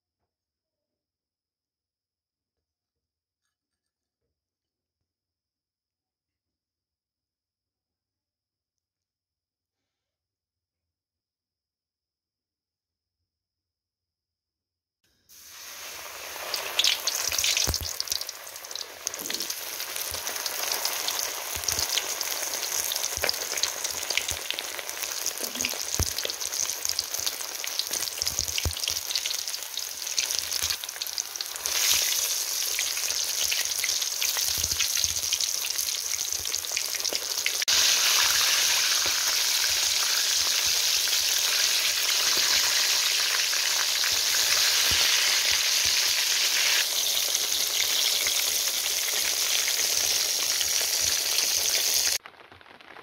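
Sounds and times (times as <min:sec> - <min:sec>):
chicken deep-frying in oil: 0:15.3 - 0:53.0.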